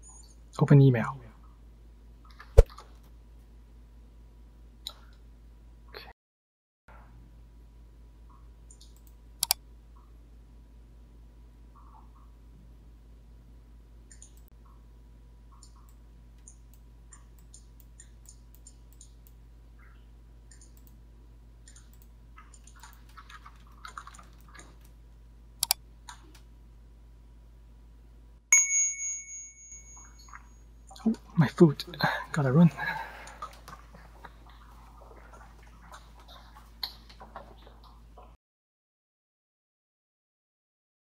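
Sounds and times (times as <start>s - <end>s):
mouse and keyboard clicks: 8.7s - 9.6s, 14.1s - 14.5s, 20.5s - 21.0s, 21.7s - 24.9s, 25.6s - 26.4s
timer alert chime: 28.6s - 30.6s.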